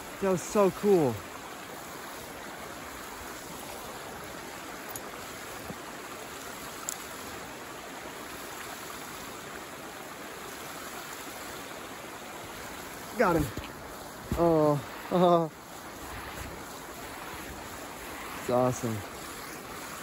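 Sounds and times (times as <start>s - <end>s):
flowing water rushing: 0.0s - 20.0s
faint ticks: 6.8s - 7.1s.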